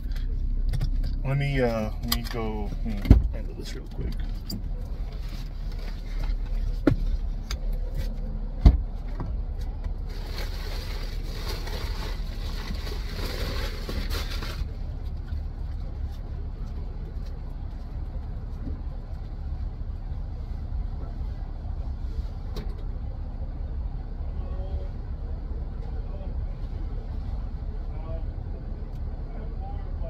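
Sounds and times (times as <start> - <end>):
low vehicle rumble: 0.0 - 30.0
plastic sack rustling: 10.0 - 14.8.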